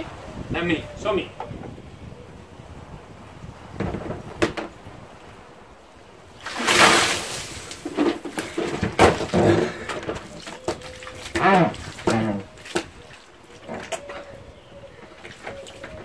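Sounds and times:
water splashing rush: 6.3s - 13.7s
bucket knocks: 6.4s - 12.9s.

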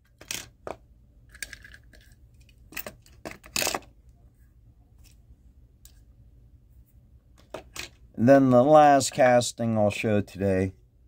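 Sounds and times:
toy cars clattering: 0.0s - 3.9s
toy cars clicking and clinking: 0.1s - 0.5s
toy cars rattling: 0.2s - 0.5s.

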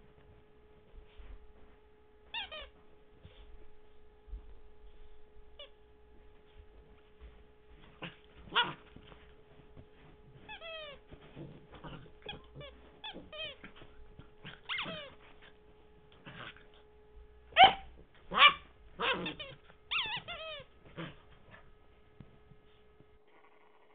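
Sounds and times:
puppy yipping and whimpering: 14.7s - 15.0s, 17.6s - 17.8s, 18.4s - 20.7s.

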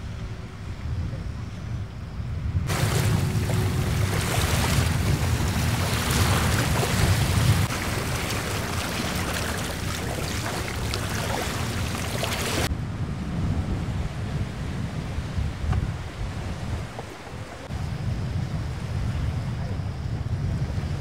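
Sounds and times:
wind buffeting microphone: 0.0s - 21.0s
water lapping at shore: 2.7s - 12.7s.

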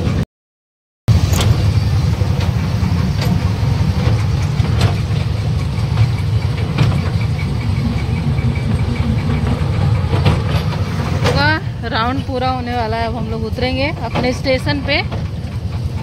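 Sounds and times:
toy train rumbling: 1.1s - 16.0s
clicks and knocks: 2.4s - 11.6s.

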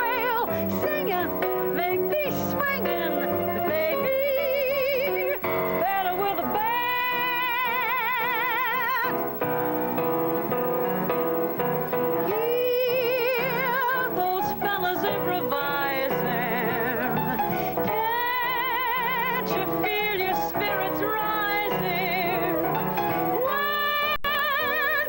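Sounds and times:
soprano singing a show tune: 0.0s - 9.1s.

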